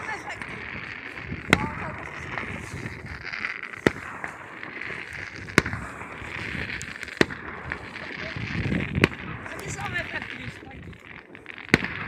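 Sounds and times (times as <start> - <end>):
fireworks exploding: 0.0 - 12.0.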